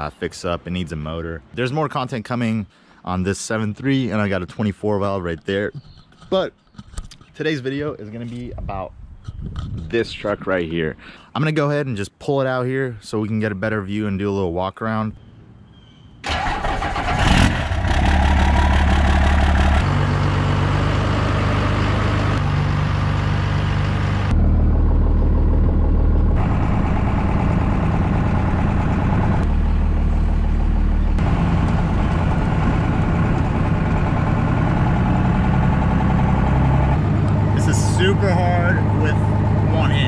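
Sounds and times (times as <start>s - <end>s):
diesel engine running: 16.3s - 40.0s.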